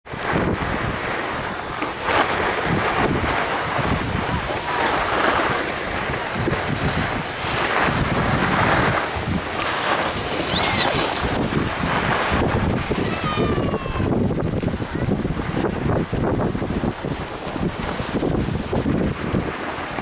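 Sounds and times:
wind buffeting microphone: 0:00.0 - 0:20.0
skis sliding on snow: 0:00.2 - 0:12.6.

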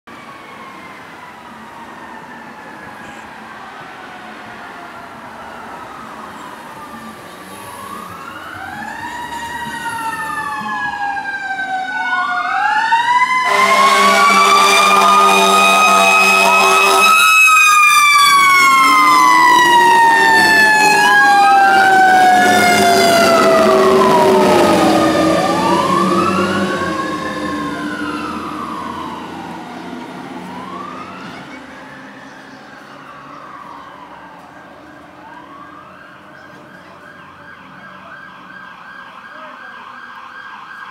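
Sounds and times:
electronic siren wailing: 0:05.4 - 0:29.7, 0:30.4 - 0:40.9
air horn blast: 0:13.4 - 0:17.3, 0:18.6 - 0:19.4.

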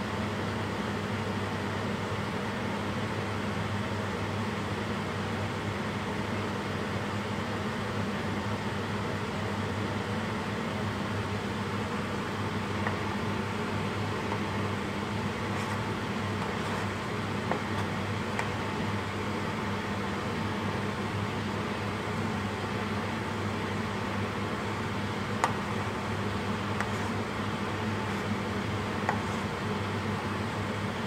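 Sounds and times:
fan humming and rushing air: 0:00.0 - 0:31.0.

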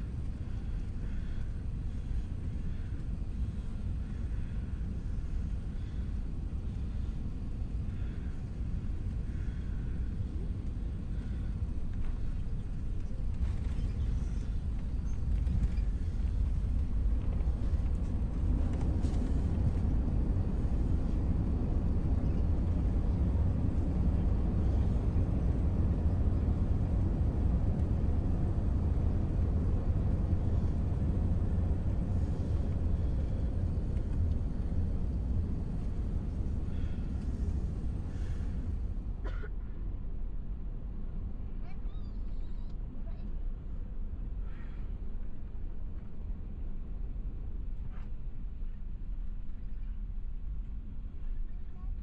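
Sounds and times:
aircraft cabin rumble while taxiing: 0:00.0 - 0:39.5.

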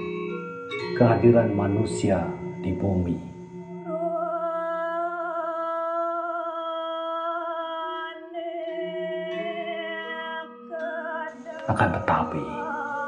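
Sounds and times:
low steady accompanying tone: 0:00.0 - 0:05.5, 0:11.3 - 0:13.0.

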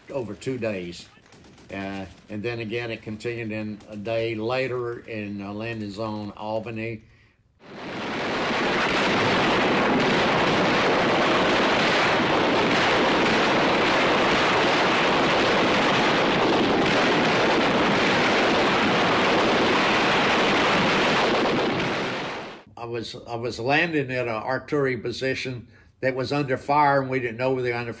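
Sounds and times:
loud rushing noise: 0:07.6 - 0:22.7.

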